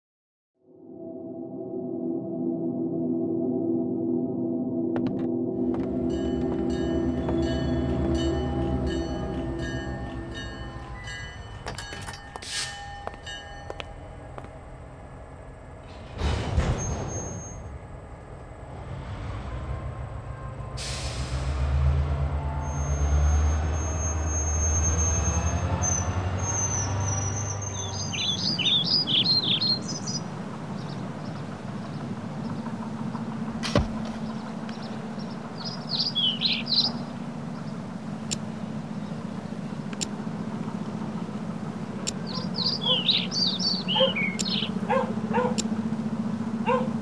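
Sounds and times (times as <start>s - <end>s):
train rumbling past: 5.4s - 47.0s
birds chirping: 26.0s - 47.0s.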